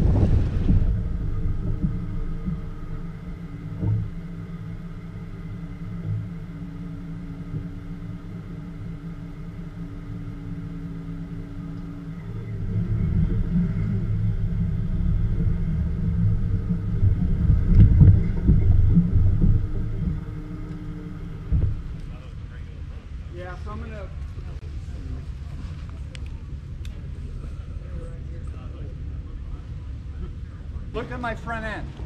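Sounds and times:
vehicle rumbling: 0.0 - 32.0.

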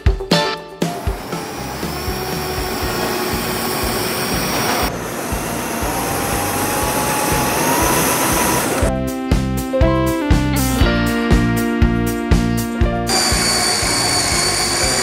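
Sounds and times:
cordless drill boring into wood: 1.1 - 8.9, 13.1 - 15.0.

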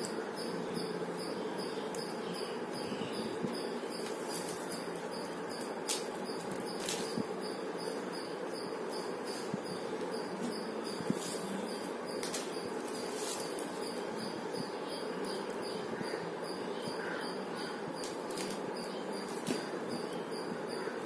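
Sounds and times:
cricket chirping: 0.0 - 21.0
steady background hiss: 0.0 - 21.0
plastic wire strands rustling: 3.5 - 7.9, 9.0 - 14.1, 18.0 - 19.8.

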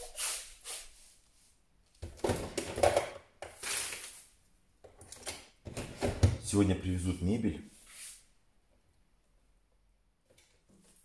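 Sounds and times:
kitchen cabinet clatter and knocks: 2.0 - 3.2, 5.6 - 6.5.

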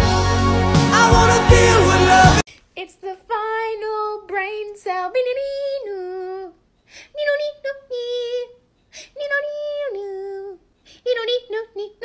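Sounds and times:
high voice singing: 0.8 - 2.4.

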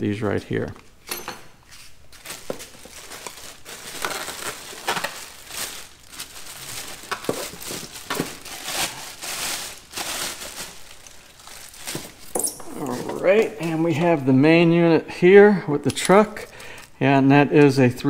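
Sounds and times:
packing material crinkling: 1.7 - 14.3.

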